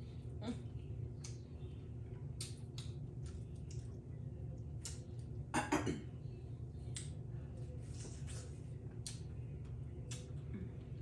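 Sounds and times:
steady low hum: 0:00.0 - 0:11.0
wet chewing and smacking: 0:02.2 - 0:05.4.

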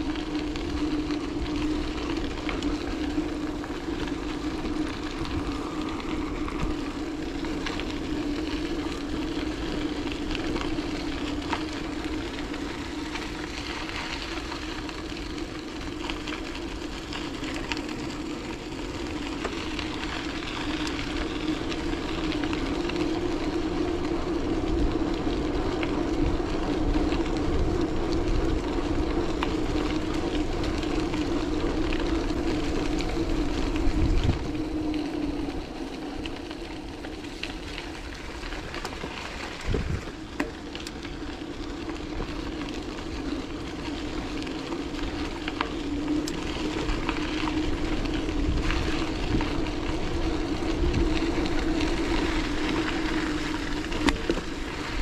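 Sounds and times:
bicycle tyres rolling: 0:00.0 - 0:55.0.

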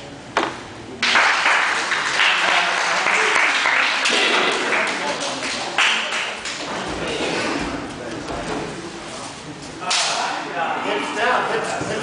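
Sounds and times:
crowd cheering and clapping: 0:01.0 - 0:06.6.

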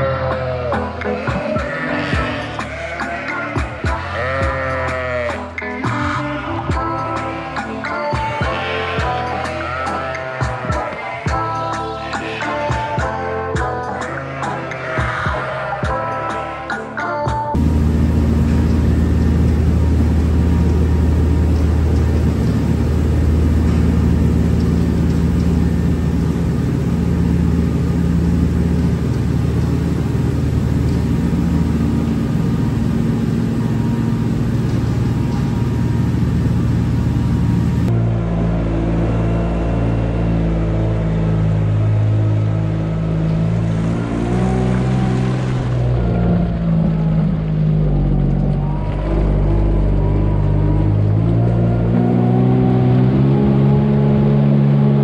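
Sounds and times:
tractor engine running: 0:17.6 - 0:53.6.

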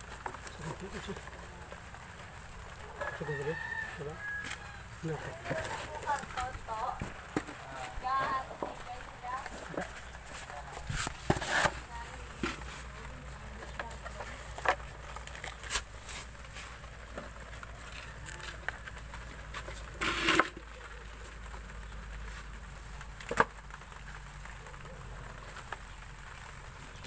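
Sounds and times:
shrimp clicking and rustling: 0:00.0 - 0:27.0
scrape in a plastic basin: 0:10.3 - 0:12.9, 0:19.6 - 0:20.6.

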